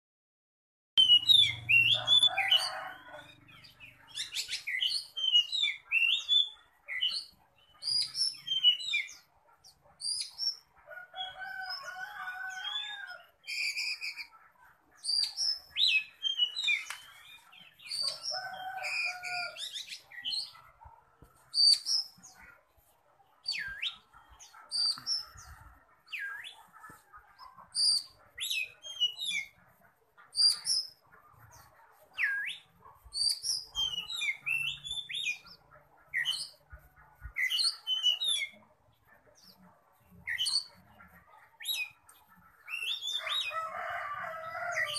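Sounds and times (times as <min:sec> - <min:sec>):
bird singing loudly: 0:01.0 - 0:03.3.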